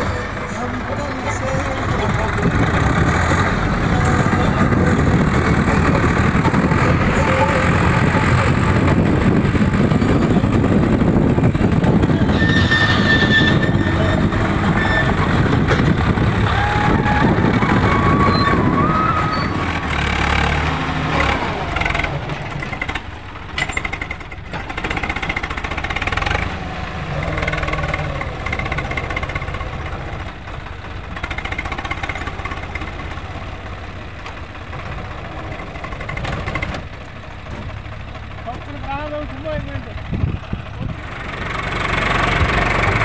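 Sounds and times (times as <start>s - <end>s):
tractor diesel engines under load: 0.0s - 43.0s.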